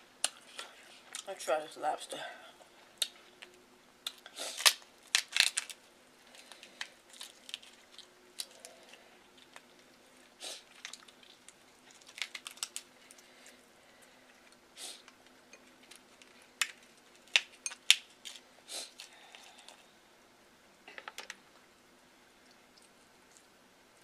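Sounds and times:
lobster shell cracking: 4.1s - 5.8s, 10.8s - 13.2s, 15.8s - 18.4s.

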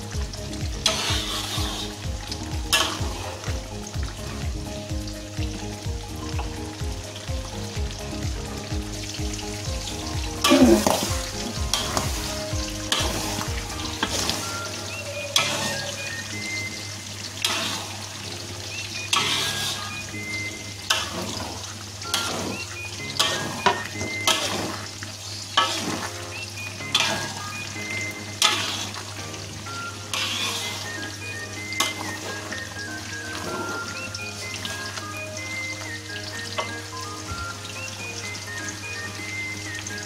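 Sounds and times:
sauce sizzling: 0.0s - 40.0s
spatula scraping a metal wok: 0.9s - 2.0s, 19.1s - 20.0s, 28.4s - 29.0s, 30.1s - 31.0s.

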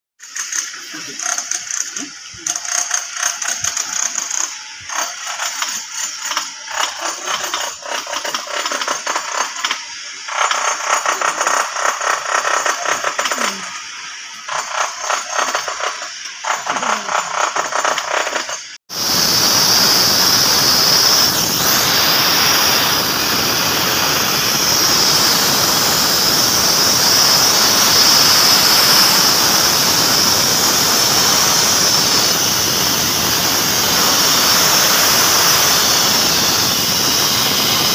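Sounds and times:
compressed air rushing from hose: 0.3s - 37.9s.

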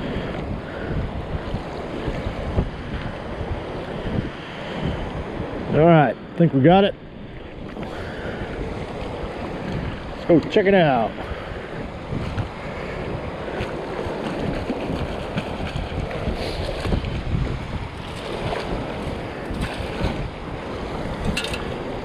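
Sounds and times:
small waves washing: 0.0s - 22.0s
wind buffeting microphone: 0.0s - 22.0s.

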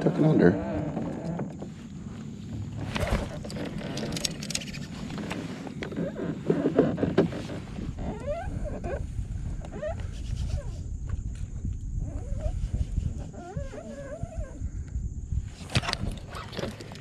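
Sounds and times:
fishing reel clicking and rattling: 3.4s - 4.9s.

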